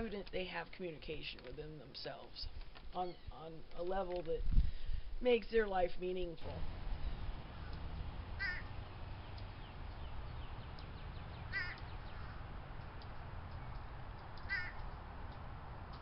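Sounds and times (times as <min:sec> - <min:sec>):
crow cawing: 0:07.6 - 0:08.8, 0:11.4 - 0:12.6, 0:14.4 - 0:14.9.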